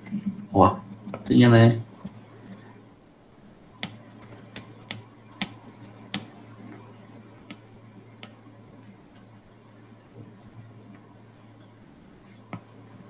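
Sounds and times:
steady low hum: 0:00.0 - 0:13.0
taps on touchscreen: 0:03.8 - 0:06.3.

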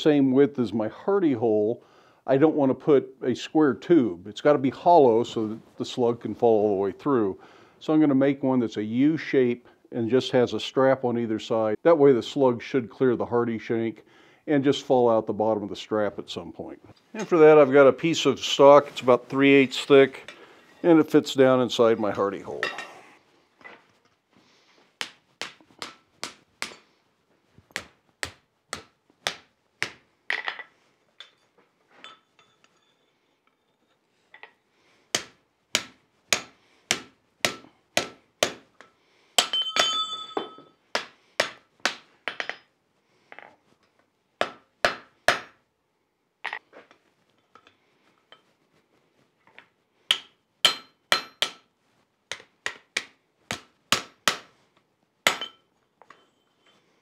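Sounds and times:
hammer striking hot metal on anvil: 0:50.1 - 0:51.6.

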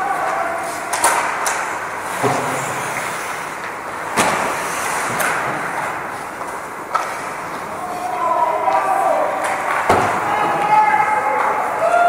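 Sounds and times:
skates scraping on ice: 0:00.2 - 0:08.2
hockey sticks and puck knocking: 0:00.2 - 0:11.6.

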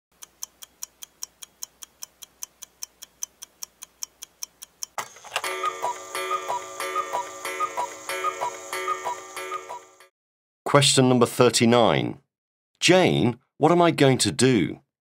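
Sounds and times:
clock ticking: 0:00.1 - 0:10.1.

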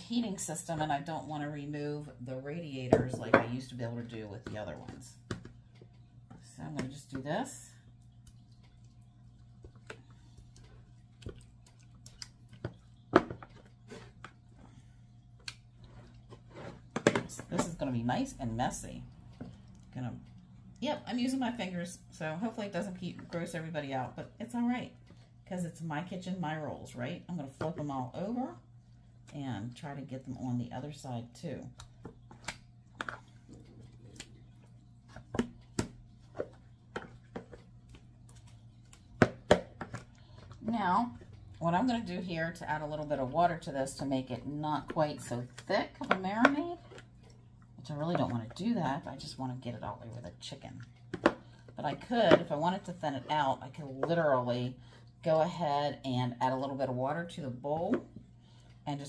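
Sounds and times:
wet squishing of marinade: 0:03.8 - 0:17.0, 0:17.7 - 0:22.1, 0:28.5 - 0:55.4
wet squishes of raw chicken: 0:07.8 - 0:17.0, 0:31.6 - 0:41.6.

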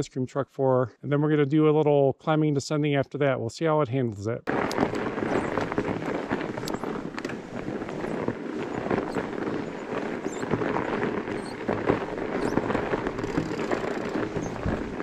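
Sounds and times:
bike tyres crunching over icy snow: 0:04.5 - 0:15.0.

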